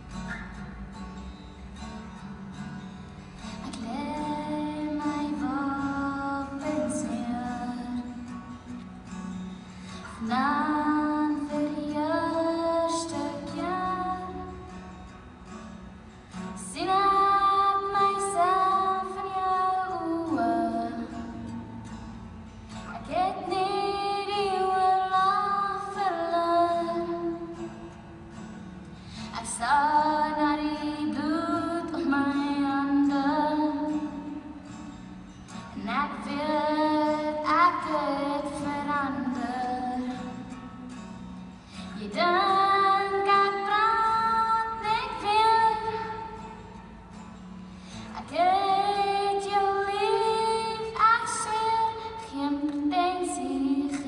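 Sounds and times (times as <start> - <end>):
acoustic guitar: 0.0 - 54.0
woman singing: 3.6 - 8.9, 10.0 - 14.8, 16.6 - 21.9, 22.7 - 28.0, 29.2 - 34.6, 35.7 - 40.7, 41.8 - 46.8, 48.1 - 54.0.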